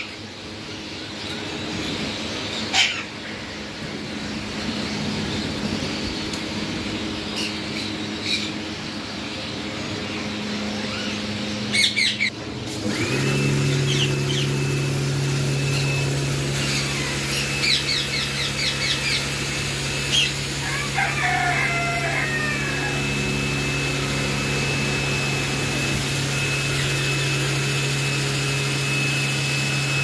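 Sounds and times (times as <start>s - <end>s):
low machine hum: 0.0s - 30.0s
parrots chirping and calling: 1.2s - 3.9s, 7.2s - 8.7s, 9.3s - 12.3s, 13.9s - 14.5s, 16.6s - 19.3s, 20.1s - 23.1s.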